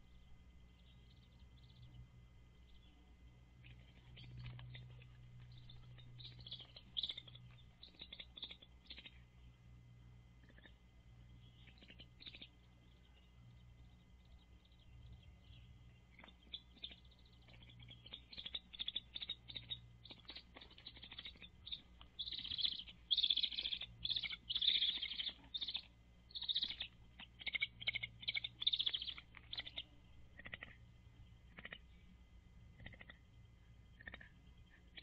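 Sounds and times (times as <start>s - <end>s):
faint low hum: 0.0s - 35.0s
eaglet chirping: 3.6s - 9.3s, 11.4s - 30.7s.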